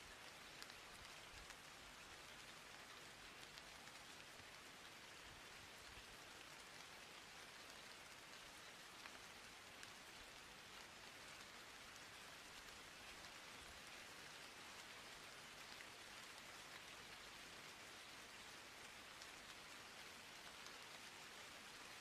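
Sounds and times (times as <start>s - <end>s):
faint steady hiss: 0.0s - 22.0s
small ticks: 0.5s - 1.7s, 2.7s - 4.0s.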